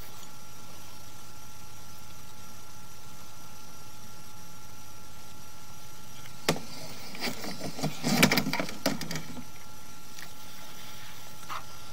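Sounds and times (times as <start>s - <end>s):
handling knocks and scrapes: 6.5s - 9.4s.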